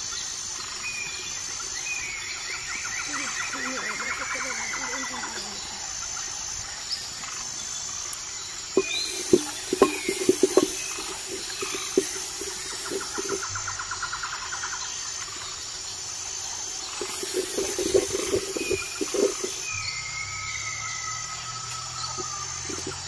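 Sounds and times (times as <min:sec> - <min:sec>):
birds chirping: 0:00.0 - 0:23.0
ladle scraping metal pot: 0:08.8 - 0:13.6, 0:17.0 - 0:19.7.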